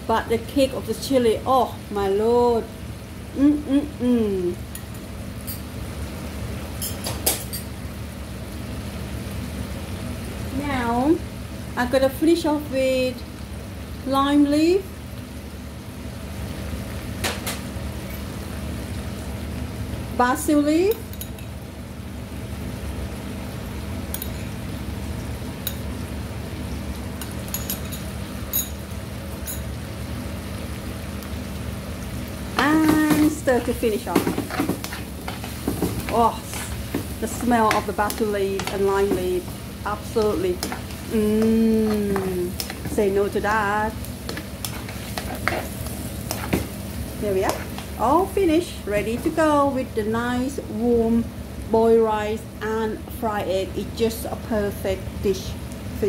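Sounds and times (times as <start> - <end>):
stir fry simmering hiss: 0.0 - 56.0
utensil clicking against wok: 34.5 - 39.6, 40.2 - 43.0.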